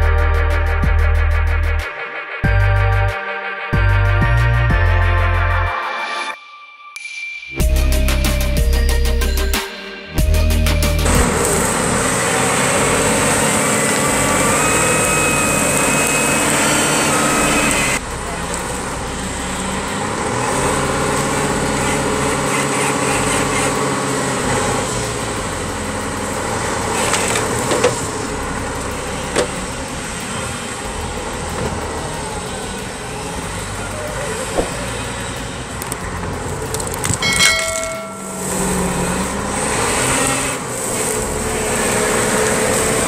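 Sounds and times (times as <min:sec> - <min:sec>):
diesel engine under load: 0:10.2 - 0:43.0.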